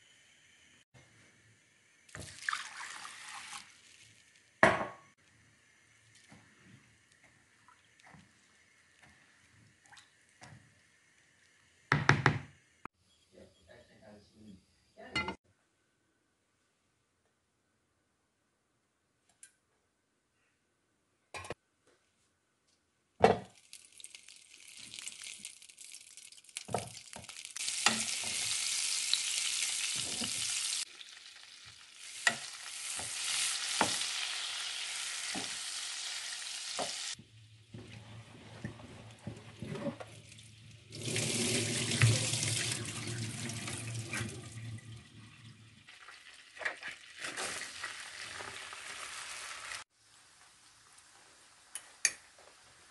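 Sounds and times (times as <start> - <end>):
fat sizzling in pot: 2.0 - 11.9, 23.5 - 44.3, 45.8 - 52.9.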